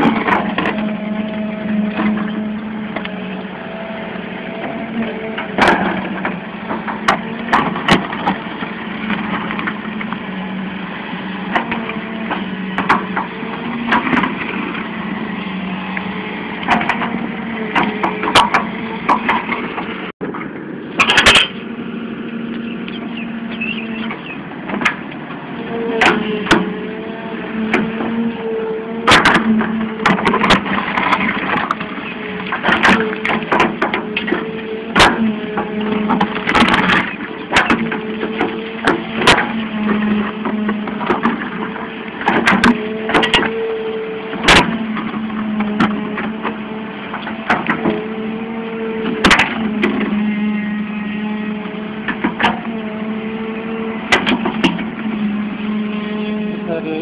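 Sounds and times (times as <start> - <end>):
excavator diesel engine: 0.0 - 57.0
sharp knocks and cracks: 5.4 - 10.2, 11.5 - 14.8, 16.6 - 20.4, 26.0 - 26.7, 29.0 - 43.7, 44.3 - 48.1, 49.0 - 50.2, 52.0 - 52.7, 54.1 - 55.0.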